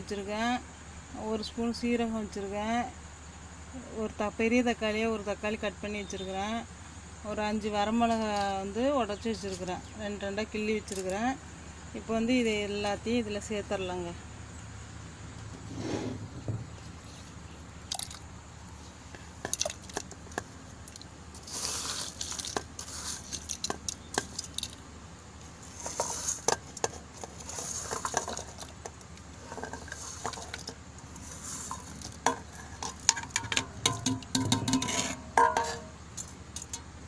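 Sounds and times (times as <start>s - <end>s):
metal clinking and scraping: 19.2s - 24.8s, 25.6s - 37.0s.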